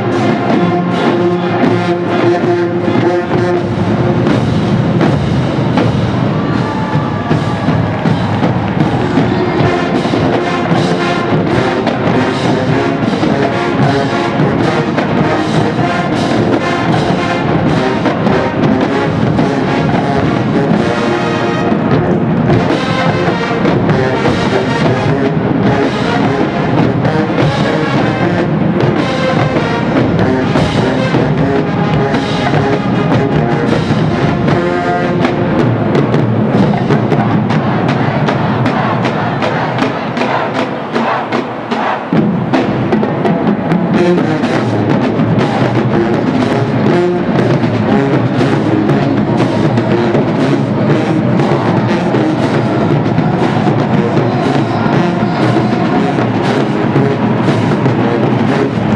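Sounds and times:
brass section playing: 0.0 - 58.9
drumline beating: 0.0 - 58.9.

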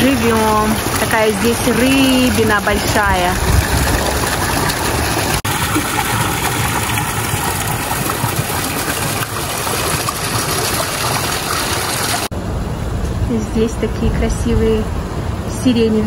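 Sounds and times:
fountain water splashing: 0.0 - 12.3.

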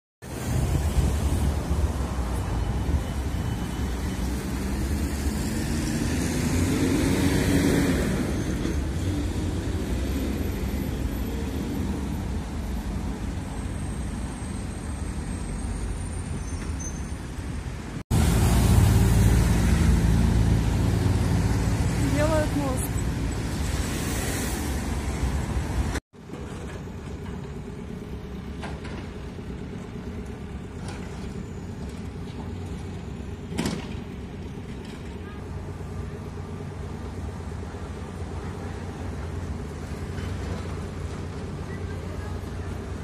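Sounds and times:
traffic rumble: 0.2 - 43.0
vehicle passing: 4.2 - 8.4, 18.1 - 26.0.

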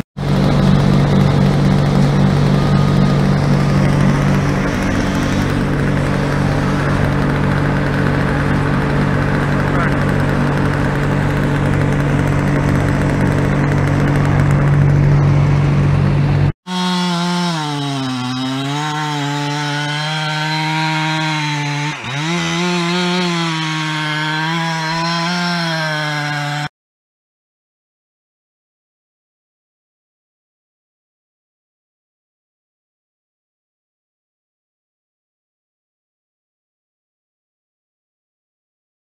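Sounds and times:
steady mechanical drone: 0.2 - 16.6
chainsaw cutting wood: 0.2 - 26.7.

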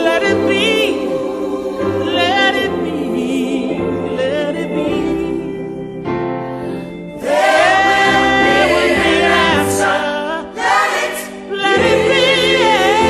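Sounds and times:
gospel choir singing: 0.0 - 13.0
instrumental backing: 0.0 - 13.0.

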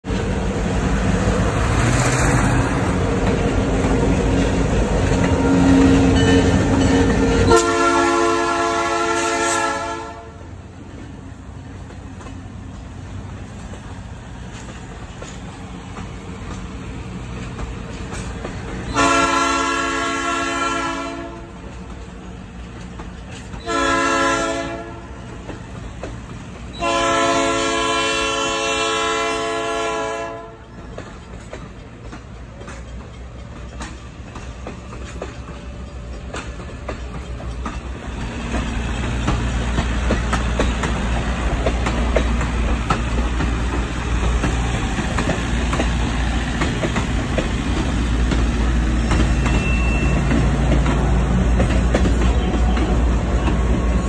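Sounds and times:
locomotive rumbling: 0.0 - 54.0
locomotive air horn blasts: 5.2 - 10.5, 18.9 - 21.6, 23.6 - 25.2, 26.8 - 30.7.

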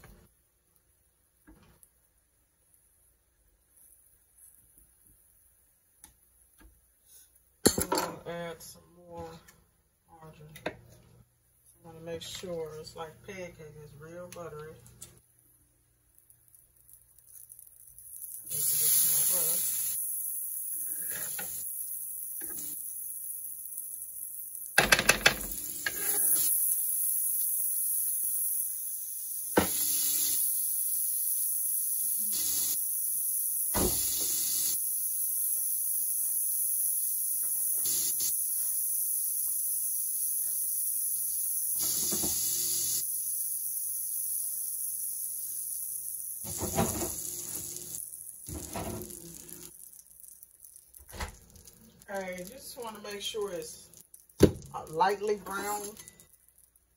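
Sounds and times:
margarine sizzling in pan: 15.2 - 56.9.

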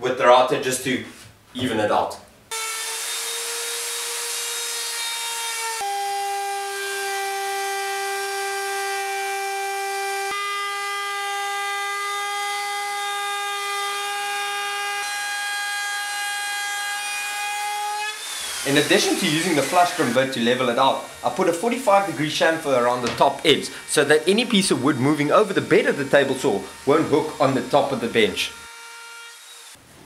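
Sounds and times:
router cutting wood: 2.5 - 29.8
router motor whining: 18.2 - 29.8.

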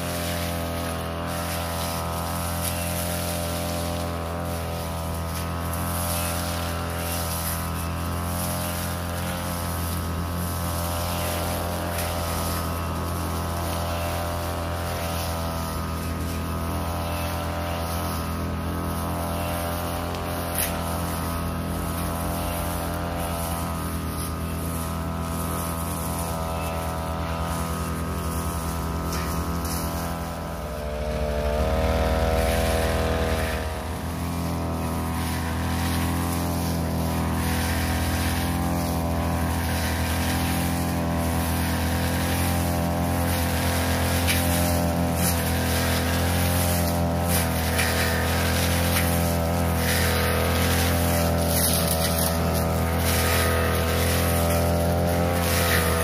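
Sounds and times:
blade cutting grass: 0.0 - 56.0
brush cutter engine running: 0.0 - 56.0.

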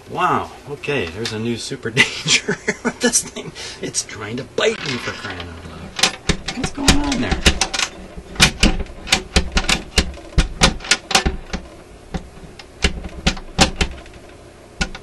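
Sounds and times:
record player mechanism clicking: 4.8 - 15.0.

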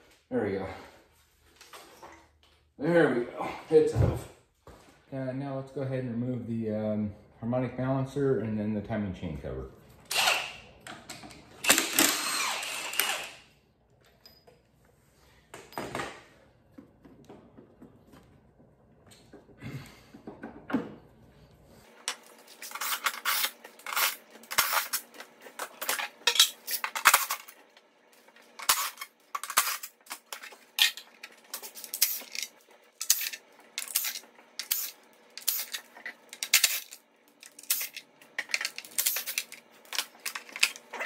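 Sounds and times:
impact driver bursts: 10.1 - 10.7, 11.6 - 13.5.

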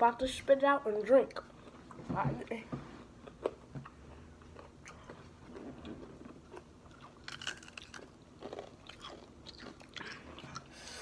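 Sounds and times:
crunching tortilla chips: 6.5 - 10.2.

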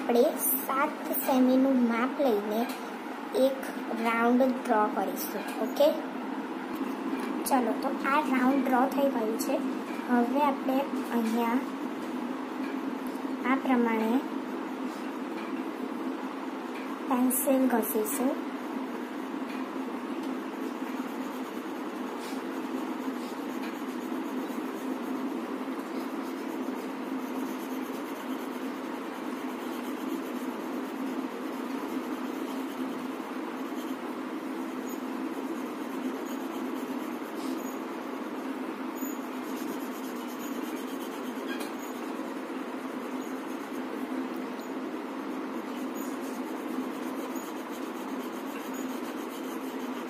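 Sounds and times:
pencil scratching on paper: 20.4 - 50.0.

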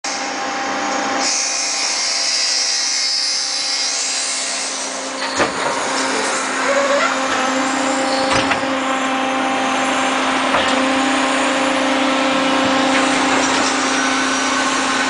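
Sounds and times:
heavy machinery humming: 3.8 - 15.0.

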